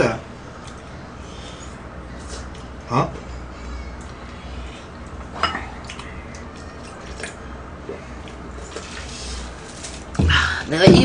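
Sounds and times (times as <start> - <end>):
low room hum: 0.0 - 11.0
soft wet chewing: 2.2 - 2.8, 3.9 - 10.1.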